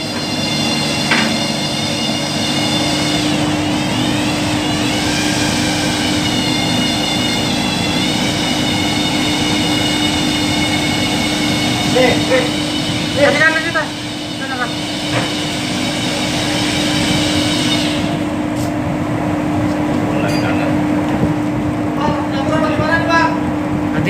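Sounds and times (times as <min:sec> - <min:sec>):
high wavering whine: 0:00.0 - 0:18.6
machinery low hum: 0:00.0 - 0:24.0.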